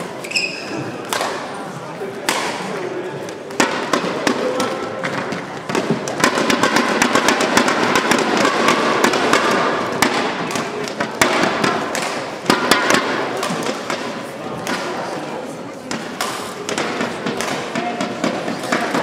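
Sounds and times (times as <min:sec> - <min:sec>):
plastic clapper sticks slapping: 0:01.1 - 0:01.4, 0:03.6 - 0:14.9, 0:15.9 - 0:19.0.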